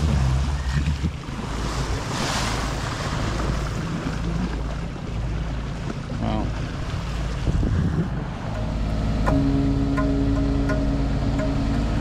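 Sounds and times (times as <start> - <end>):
boat engine drone: 0.0 - 12.0
water rushing along boat bow: 0.0 - 12.0
wind buffeting microphone: 6.6 - 12.0.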